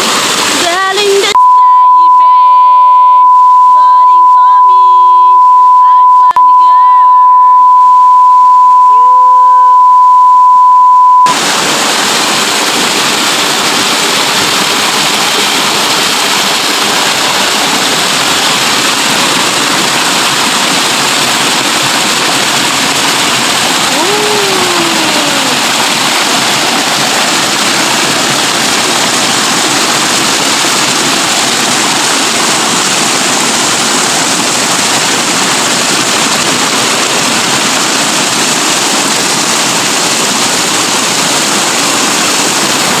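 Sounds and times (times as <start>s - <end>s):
waterfall rushing over rocks: 0.0s - 1.4s, 11.3s - 43.0s.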